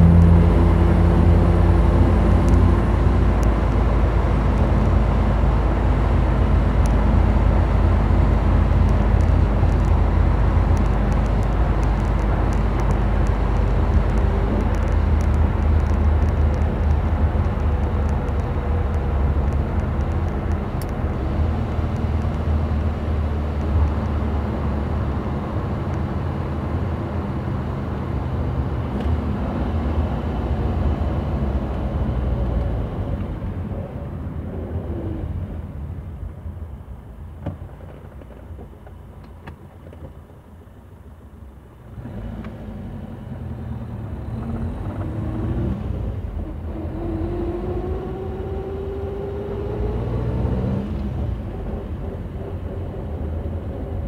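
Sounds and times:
car engine running: 0.0s - 26.1s
road and tyre rumble: 0.0s - 54.0s.

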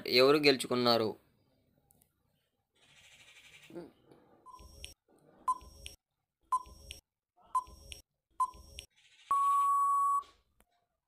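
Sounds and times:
short electronic beeps: 7.6s - 10.3s
long steady beep: 9.3s - 10.3s.

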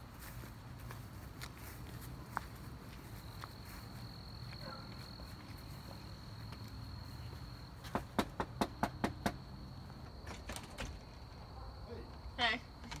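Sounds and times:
knocks on storm door: 7.9s - 9.4s
cricket trilling: 8.4s - 13.0s.

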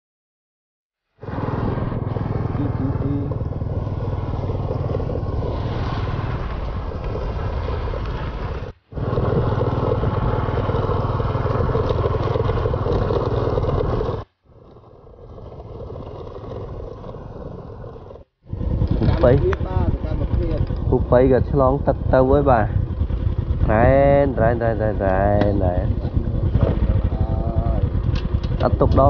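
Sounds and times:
motor scooter engine running: 1.2s - 29.0s.

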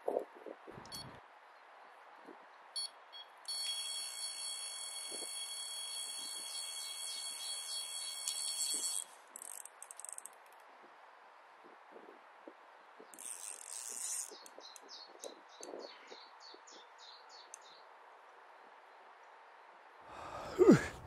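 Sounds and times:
bite alarm beeps: 2.8s - 9.0s
bite alarm continuous tone: 2.8s - 9.2s.

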